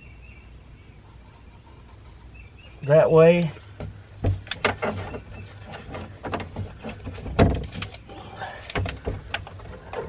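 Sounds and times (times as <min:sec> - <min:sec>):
light clicks and knocks on plastic: 0:03.4 - 0:10.0.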